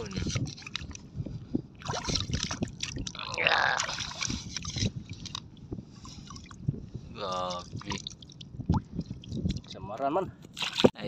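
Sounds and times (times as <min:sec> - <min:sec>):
water and mud sloshing: 0:00.0 - 0:11.0.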